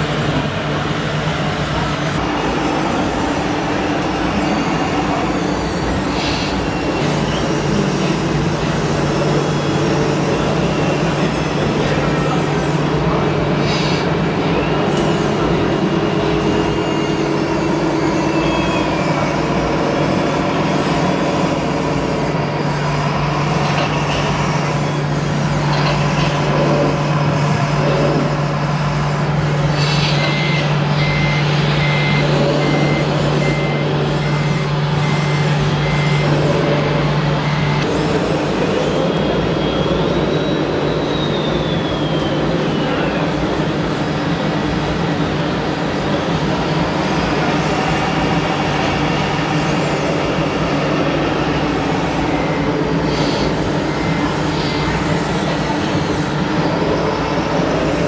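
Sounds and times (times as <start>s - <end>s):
reversing beeper: 29.6s - 37.9s, 51.3s - 55.5s.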